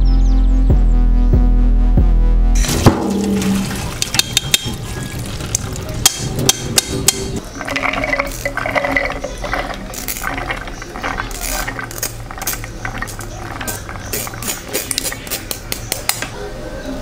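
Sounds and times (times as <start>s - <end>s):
pot and strainer clinking: 2.6s - 15.3s
beans draining in metal strainer: 7.4s - 15.2s
spoon scraping beans: 7.4s - 15.9s.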